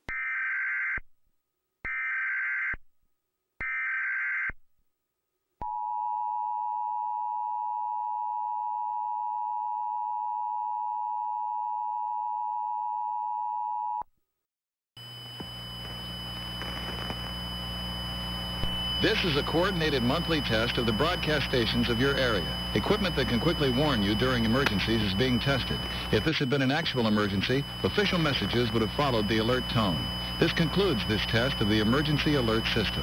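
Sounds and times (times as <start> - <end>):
harsh buzzing with high whistles: 15.0 - 33.0
digital data bursts: 15.6 - 33.0.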